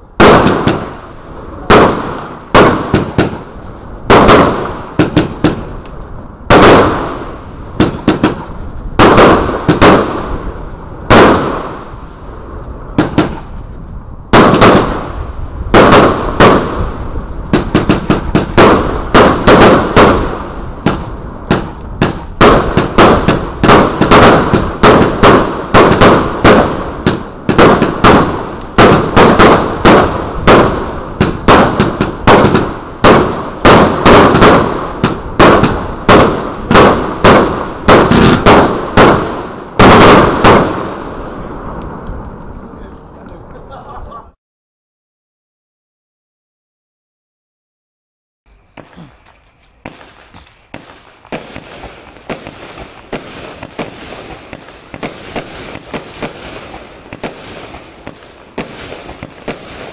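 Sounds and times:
firework aerial bursts crackling: 0:00.0 - 0:44.4, 0:48.5 - 0:59.9.

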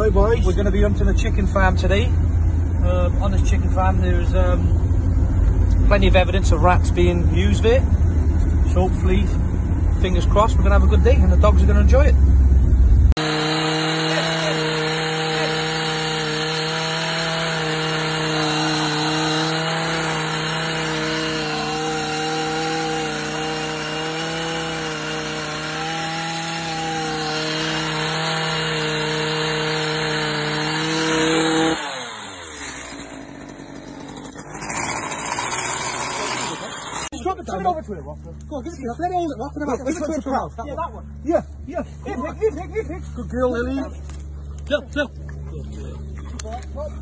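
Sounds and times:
small motor running and winding down: 0:13.2 - 0:37.2.

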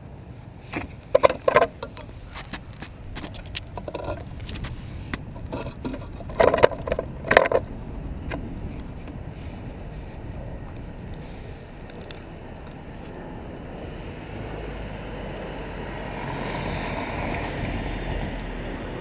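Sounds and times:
low steady rumble: 0:00.0 - 0:16.1
quadcopter handling clicks and rattles: 0:00.8 - 0:09.2, 0:11.8 - 0:13.2.

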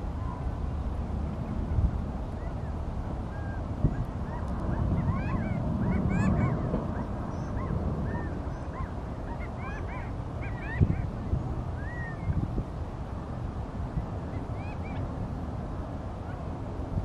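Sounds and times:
wind rumble on microphone: 0:00.0 - 0:17.0
quail contact calls: 0:02.4 - 0:11.2.

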